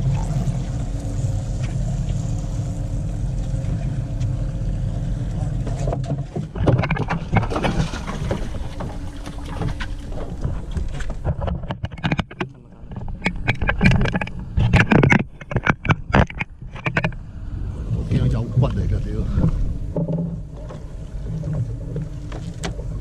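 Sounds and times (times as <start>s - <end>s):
low steady hum: 0.0s - 23.0s
knocking and clattering on boat: 5.4s - 17.2s, 19.4s - 23.0s.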